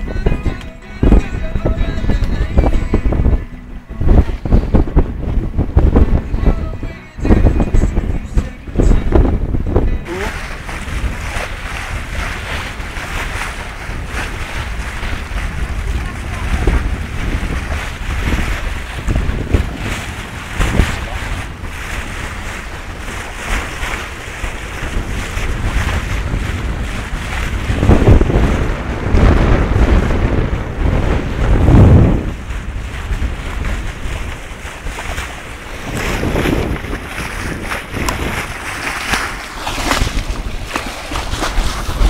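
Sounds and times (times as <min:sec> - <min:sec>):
water splashing along a hull: 0:00.0 - 0:42.0
wind buffeting microphone: 0:00.0 - 0:42.0.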